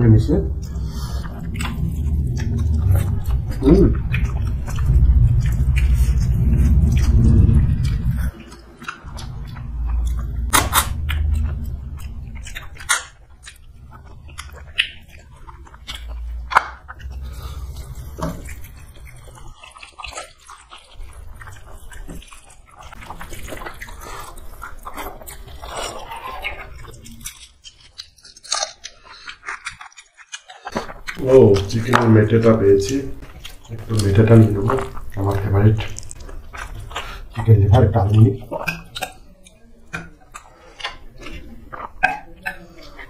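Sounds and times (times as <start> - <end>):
heavy low rumble: 0.0 - 19.7, 31.1 - 38.2
people chewing food: 0.0 - 43.0
wet mouth clicks and smacks: 38.1 - 43.0.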